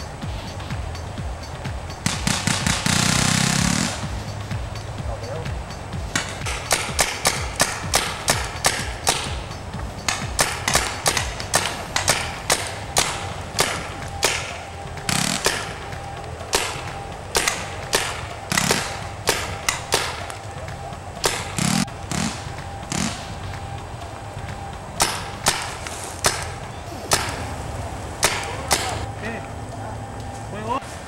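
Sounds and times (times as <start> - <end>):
paintball markers firing: 2.0 - 4.1, 6.1 - 23.6, 24.6 - 27.6, 28.2 - 29.1.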